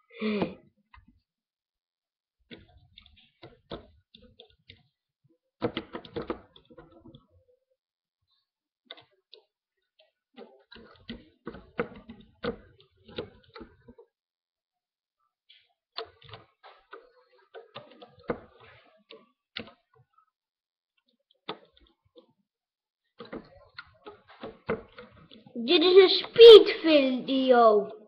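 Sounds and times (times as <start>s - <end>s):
small plastic clicks and taps: 5.6s - 7.2s, 10.4s - 14.1s, 15.5s - 19.8s, 23.2s - 25.5s.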